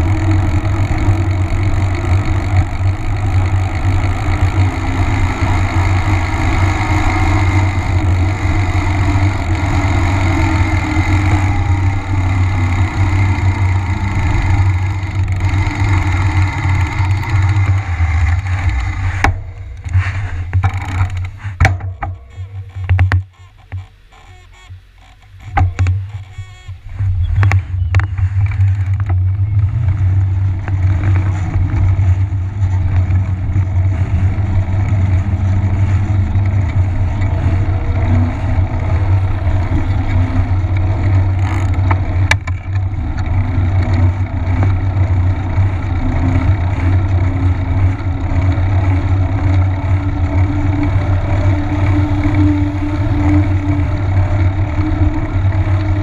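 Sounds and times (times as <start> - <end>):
bike tyre humming on asphalt: 0.0 - 56.0.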